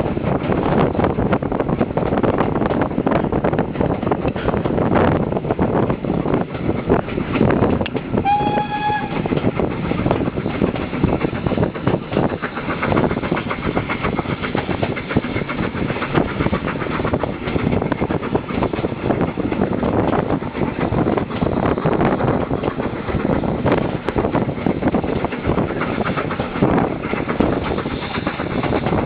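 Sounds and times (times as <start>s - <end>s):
wheels rumbling on rails: 0.0s - 29.0s
steam locomotive whistle: 8.2s - 9.3s.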